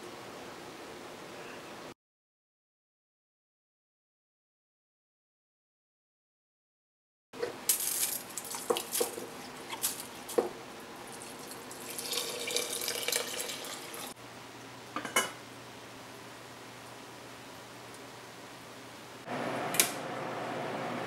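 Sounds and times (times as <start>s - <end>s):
broth pouring and splashing: 11.0s - 14.2s.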